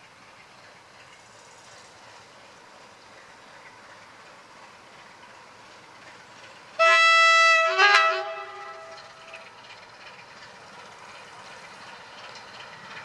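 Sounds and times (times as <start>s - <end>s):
faint freight train running: 0.0s - 13.0s
locomotive air horn: 6.8s - 9.4s.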